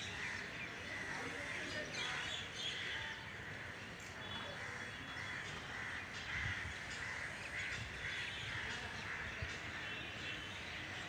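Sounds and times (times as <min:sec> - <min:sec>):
outdoor background noise: 0:00.0 - 0:11.0
crows cawing: 0:04.6 - 0:09.3.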